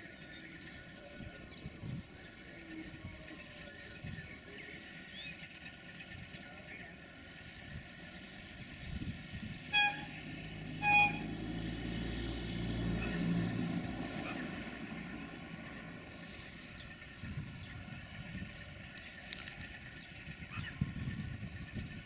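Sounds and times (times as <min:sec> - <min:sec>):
diesel engine low drone: 0:00.0 - 0:22.0
locomotive horn blasts: 0:09.6 - 0:11.6.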